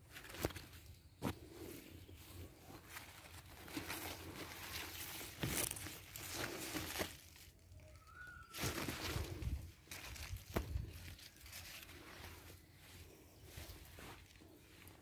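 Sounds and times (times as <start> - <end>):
leaves rustling and crinkling: 0.0 - 15.0.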